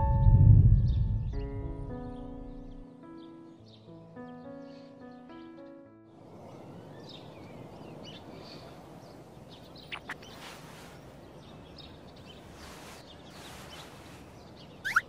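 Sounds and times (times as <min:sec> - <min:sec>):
outdoor ambience hiss: 0:06.2 - 0:15.0
bird chirps: 0:06.3 - 0:15.0.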